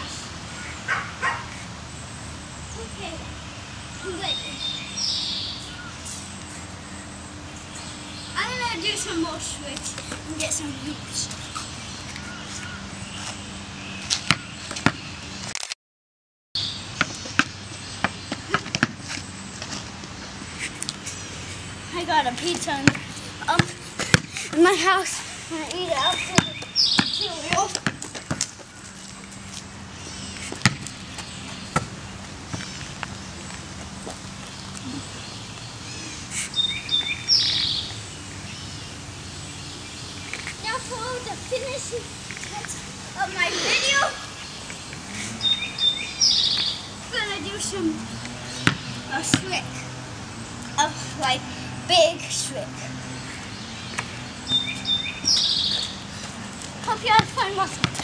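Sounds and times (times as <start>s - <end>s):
wild birds singing: 0.0s - 15.5s, 16.6s - 27.8s, 28.6s - 57.8s
outdoor background noise: 0.0s - 15.8s, 16.6s - 58.0s
rubber ball bouncing on concrete: 26.3s - 28.6s, 30.5s - 31.0s, 48.2s - 49.5s, 57.2s - 58.0s.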